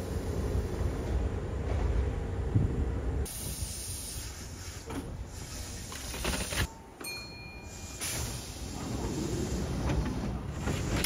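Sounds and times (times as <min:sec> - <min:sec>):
train rumble and hiss: 0:00.0 - 0:06.7, 0:07.5 - 0:11.0
train clunks: 0:00.9 - 0:02.7, 0:05.8 - 0:11.0.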